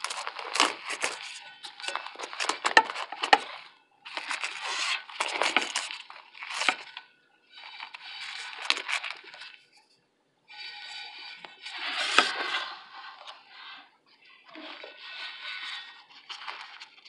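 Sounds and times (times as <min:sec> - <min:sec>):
paper wrapping crinkling and tearing: 0:00.0 - 0:07.0, 0:07.6 - 0:09.7, 0:11.5 - 0:13.4, 0:14.6 - 0:17.0.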